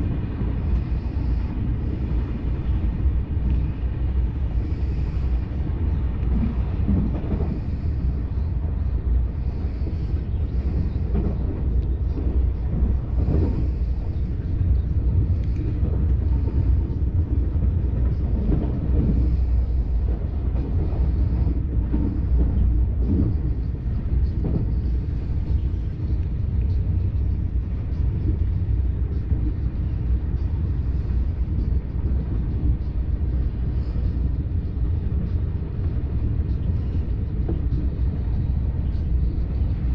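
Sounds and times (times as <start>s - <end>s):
train rumble from inside: 0.0s - 39.9s.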